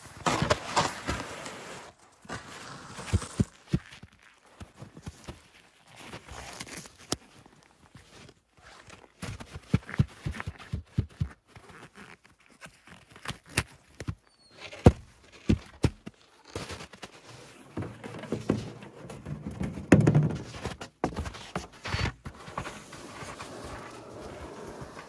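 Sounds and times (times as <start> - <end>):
skis crunching over snow: 0.0 - 7.0, 20.5 - 25.0
boots knocking in ski bindings: 9.2 - 11.4, 14.0 - 17.0.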